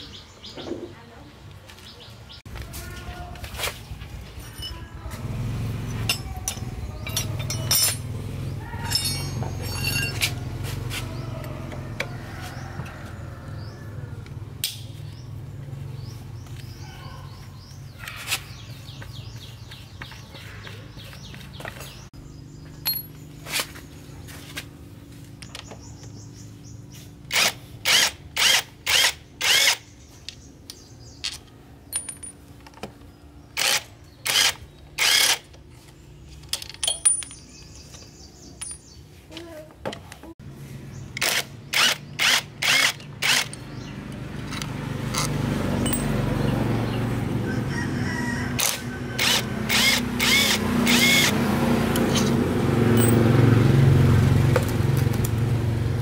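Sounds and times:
metal tools clinking: 0:04.4 - 0:05.0, 0:06.0 - 0:08.1, 0:08.8 - 0:10.5, 0:22.8 - 0:23.2, 0:31.2 - 0:32.8, 0:36.3 - 0:39.0, 0:44.4 - 0:46.2, 0:52.0 - 0:53.2
cordless power tool driving bolts: 0:33.6 - 0:35.5, 0:41.2 - 0:43.6, 0:48.6 - 0:52.4.

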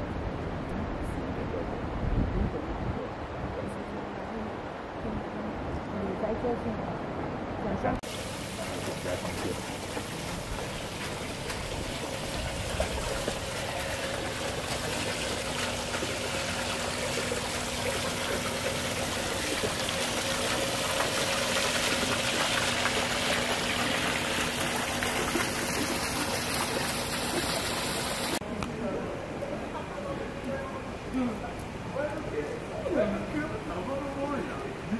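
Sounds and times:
faint steady hum: 0:00.0 - 0:34.9
running water rushing: 0:08.0 - 0:28.4.

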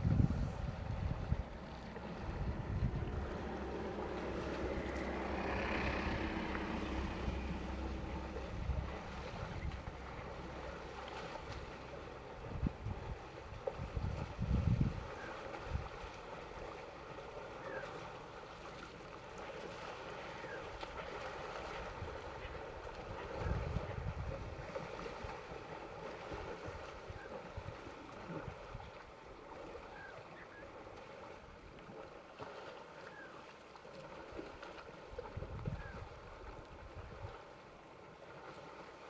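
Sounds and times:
wind gusting on microphone: 0:00.0 - 0:10.0, 0:12.4 - 0:16.0, 0:21.8 - 0:25.3, 0:35.2 - 0:36.2.

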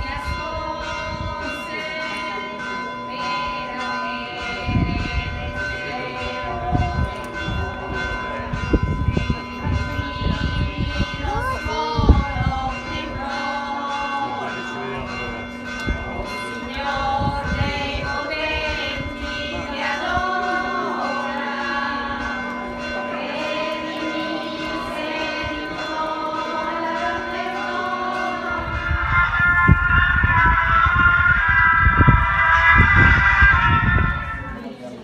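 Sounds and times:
crowd singing a hymn: 0:00.0 - 0:35.0
steady low held tone: 0:00.0 - 0:35.0.

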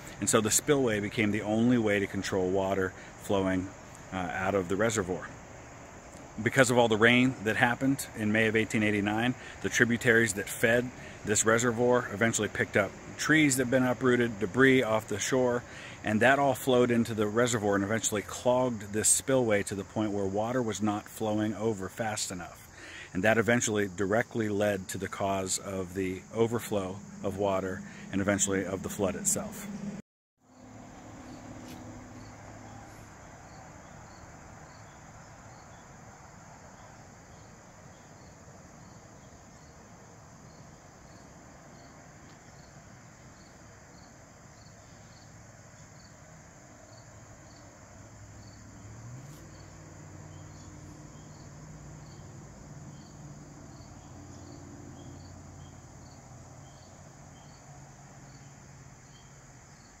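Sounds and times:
crickets chirping: 0:00.0 - 1:00.0.

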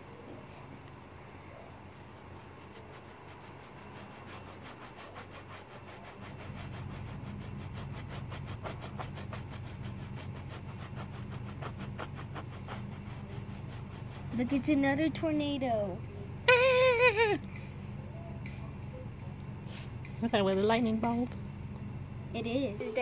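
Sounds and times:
low steady hum: 0:00.0 - 0:23.0
paintbrush scrubbing canvas: 0:01.9 - 0:14.8.

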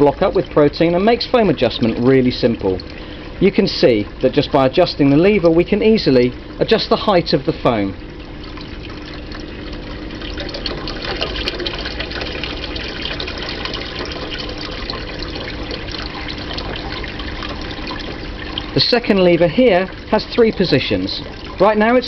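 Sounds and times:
faint pump hum: 0:00.0 - 0:22.0
water splashing and bubbling: 0:00.0 - 0:22.0.

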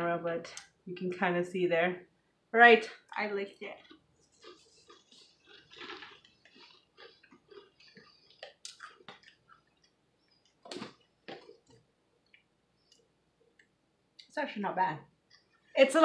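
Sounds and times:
crunching and chewing crackers: 0:03.6 - 0:13.7.

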